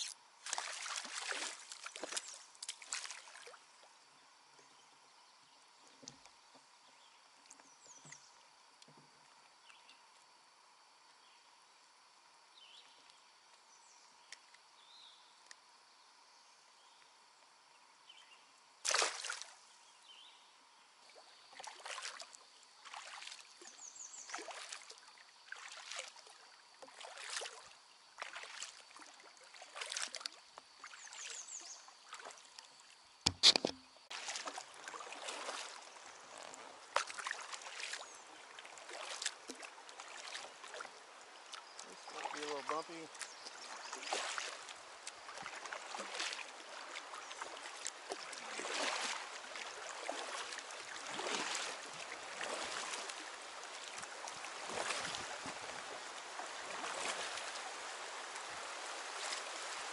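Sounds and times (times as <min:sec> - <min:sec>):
kayak paddle splashing water: 0:00.0 - 0:04.0, 0:18.8 - 0:19.6, 0:21.4 - 0:59.9.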